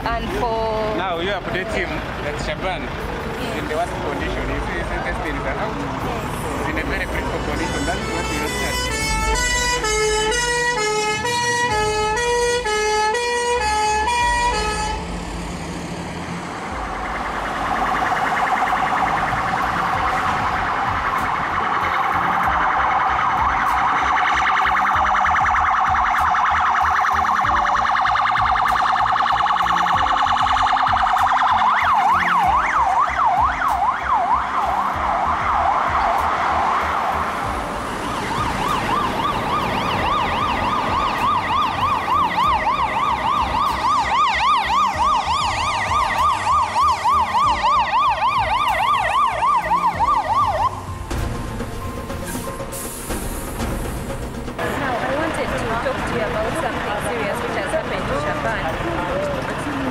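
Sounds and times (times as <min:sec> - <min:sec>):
two-tone hi-lo siren: 0:07.6 - 0:15.1, 0:16.7 - 0:51.1
wavering siren yelping: 0:16.7 - 0:51.1.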